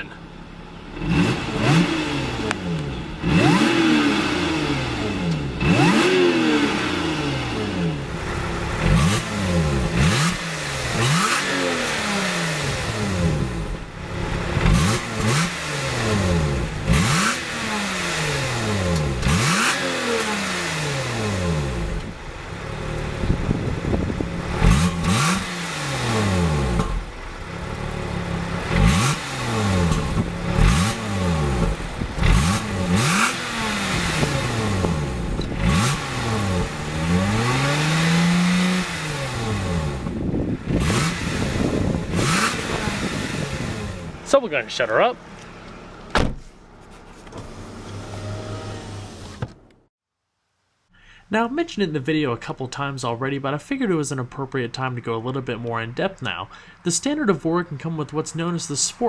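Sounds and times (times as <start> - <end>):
car engine revving: 0.0 - 46.2, 47.4 - 49.9
supercharger whine: 0.0 - 46.2.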